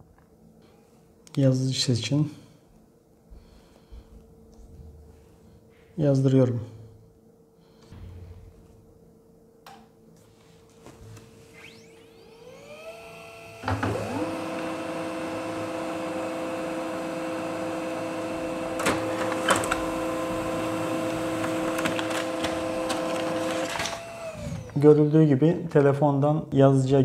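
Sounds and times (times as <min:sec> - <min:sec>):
printer whirring hum: 0:10.4 - 0:25.1
printer motors whining: 0:11.5 - 0:25.1
sharp printer clicks: 0:18.7 - 0:24.4.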